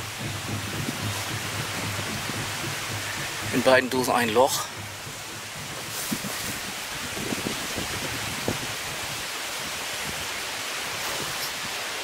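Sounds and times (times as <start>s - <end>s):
wind in grass and leaves: 0.0s - 12.0s.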